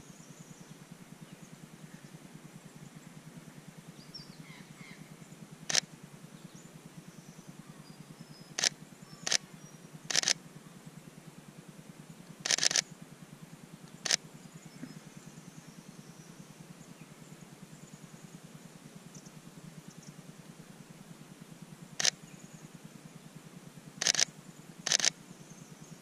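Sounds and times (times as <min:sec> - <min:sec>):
camera shutter clicks: 0:08.6 - 0:09.4, 0:10.1 - 0:10.4, 0:12.4 - 0:12.9, 0:14.0 - 0:14.2, 0:22.0 - 0:22.2, 0:24.0 - 0:24.3, 0:24.9 - 0:25.2.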